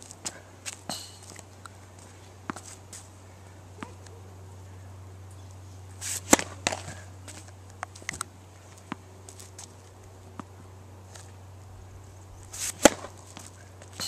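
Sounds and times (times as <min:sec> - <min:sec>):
steady low hum: 0:00.0 - 0:14.0
racket swing swish: 0:05.9 - 0:07.5, 0:12.4 - 0:14.0
racket striking ball: 0:06.0 - 0:07.0, 0:12.6 - 0:14.0.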